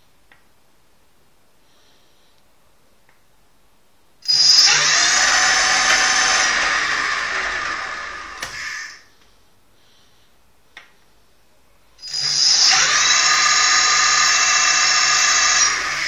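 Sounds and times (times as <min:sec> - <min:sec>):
electric motor high whine: 0:04.2 - 0:09.0, 0:12.0 - 0:16.0.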